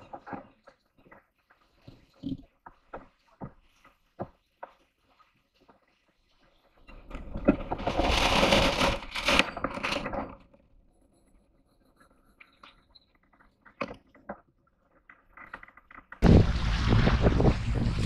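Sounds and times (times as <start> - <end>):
sail flapping and scraping: 0.0 - 10.6, 16.2 - 18.0.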